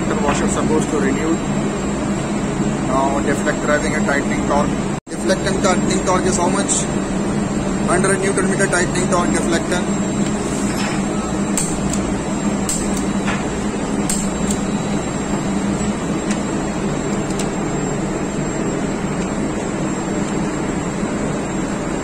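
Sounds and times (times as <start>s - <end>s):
engine-room machinery drone: 0.0s - 22.0s.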